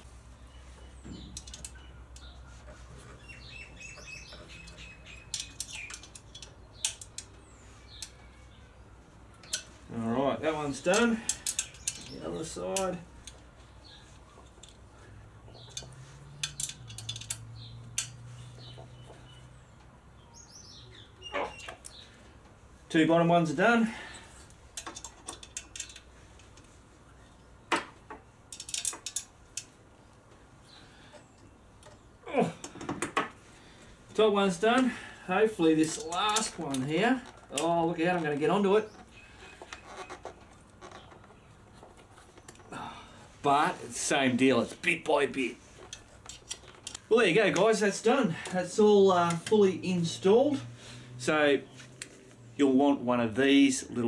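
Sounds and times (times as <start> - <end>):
bird chirps: 0.4 - 8.8, 13.8 - 22.2
allen key clicking on bolts: 1.1 - 2.4, 4.2 - 7.3, 10.8 - 13.4, 15.5 - 18.2, 24.8 - 26.6, 28.5 - 29.8.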